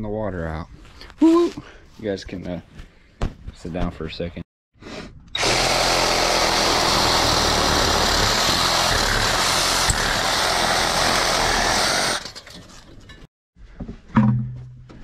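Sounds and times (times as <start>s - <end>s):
reciprocating saw cutting pipe: 5.4s - 12.3s.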